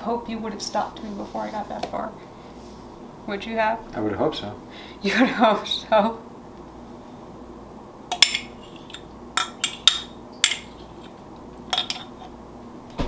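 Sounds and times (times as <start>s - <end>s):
metal spoon clinking on glass: 8.1s - 10.8s, 11.7s - 12.1s.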